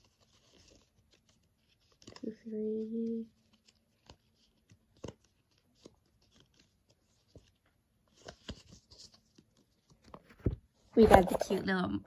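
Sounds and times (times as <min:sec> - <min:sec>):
crinkly rustles: 0:00.0 - 0:11.8.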